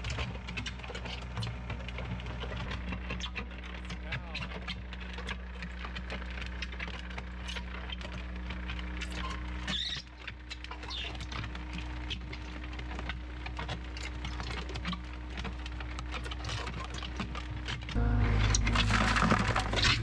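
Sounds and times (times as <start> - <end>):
gravel rattling: 0.0 - 20.0
loader engine drone: 17.4 - 20.0
paddles scraping earth: 18.0 - 20.0.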